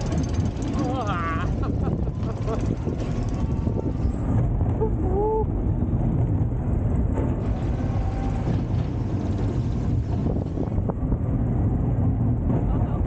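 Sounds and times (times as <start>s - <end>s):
coaster wheels rumbling on rails: 0.0s - 13.0s
wind on microphone: 0.0s - 13.0s.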